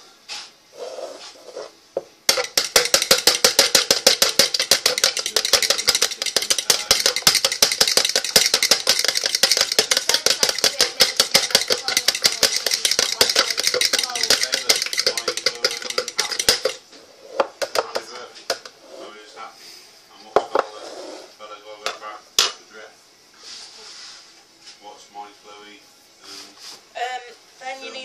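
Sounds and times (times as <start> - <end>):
egg beaten in plastic jug: 2.3 - 16.8, 17.4 - 18.6.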